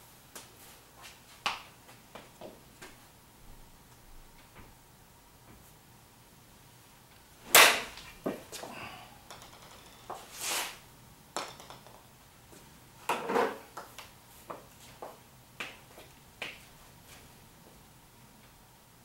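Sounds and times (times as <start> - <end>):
golf club striking ball: 7.4 - 8.0.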